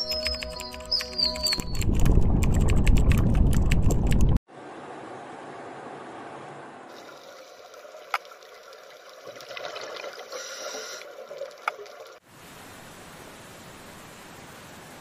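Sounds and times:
sharp clicks: 0:00.0 - 0:04.4
water trickling and gurgling: 0:06.9 - 0:12.2.

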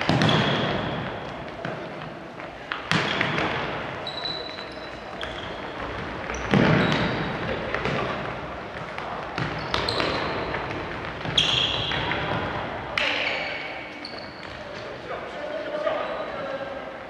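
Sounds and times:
ball kicked and bouncing: 0:00.0 - 0:02.1
sneakers squeaking: 0:00.0 - 0:16.6.

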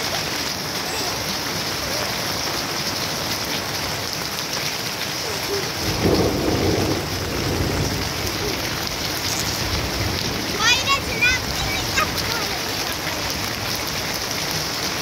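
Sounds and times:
steady rain on foliage: 0:00.0 - 0:15.0
thunder rumbling: 0:05.4 - 0:15.0.

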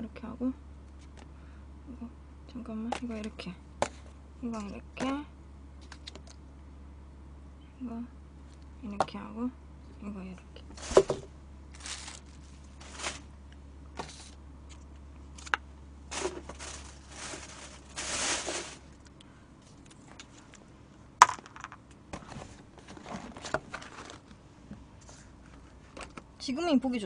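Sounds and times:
plastic packaging crinkling: 0:10.8 - 0:13.3, 0:16.1 - 0:19.1.

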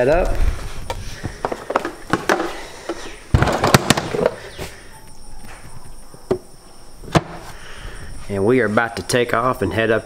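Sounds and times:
plastic cooler knocking: 0:01.4 - 0:04.4, 0:07.1 - 0:07.4.

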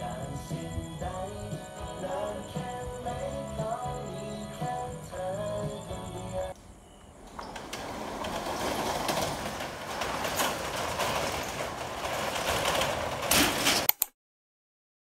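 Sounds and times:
metal roller shutter rattling: 0:07.2 - 0:13.9
shutter clanking: 0:07.3 - 0:14.1.

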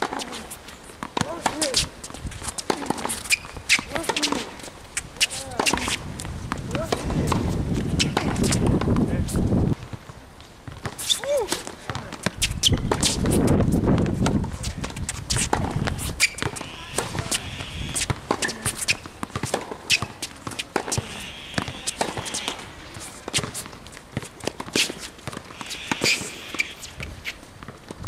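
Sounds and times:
ball bouncing: 0:00.0 - 0:04.6, 0:05.2 - 0:09.1, 0:09.8 - 0:28.0
racket striking tennis ball: 0:00.0 - 0:04.6, 0:05.2 - 0:06.0, 0:06.7 - 0:09.0, 0:10.7 - 0:27.7
footsteps and shoe scuffs: 0:01.5 - 0:08.7.

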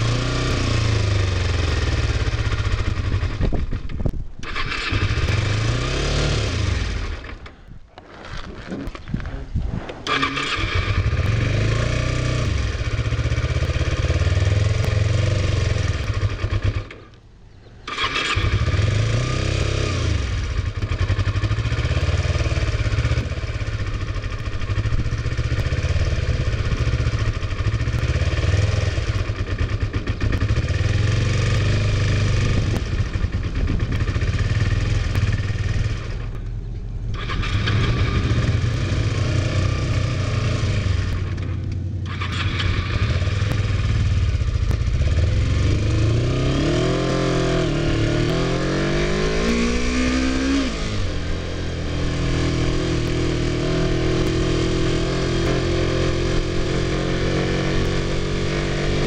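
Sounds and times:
motorcycle engine running: 0:00.0 - 0:07.6, 0:10.0 - 0:17.1, 0:17.8 - 0:59.0
wind noise on microphone: 0:02.1 - 0:05.6, 0:06.8 - 0:11.4, 0:31.6 - 0:36.3.

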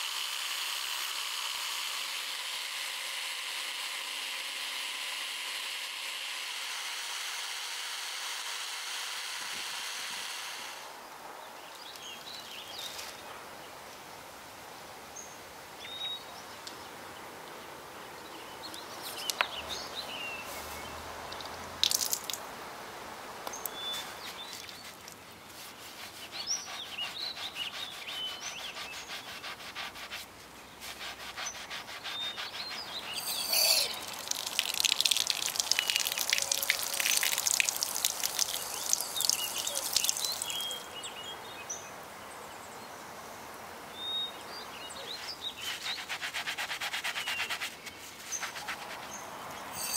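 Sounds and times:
birds chirping: 0:23.4 - 0:29.5, 0:30.5 - 0:46.2
sponge scrubbing: 0:24.3 - 0:34.4, 0:45.6 - 0:49.1
polishing wheel on brass: 0:25.6 - 0:34.5
tap water running: 0:33.2 - 0:40.8.

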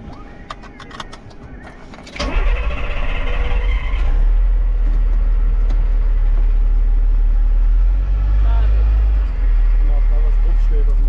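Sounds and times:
diesel truck engine pulling away: 0:02.2 - 0:11.0.

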